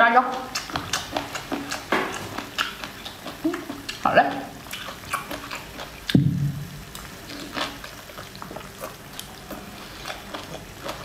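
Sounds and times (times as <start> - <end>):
small wet clicks of eating: 0.0 - 6.2, 6.9 - 11.0
dull thump: 6.2 - 6.7.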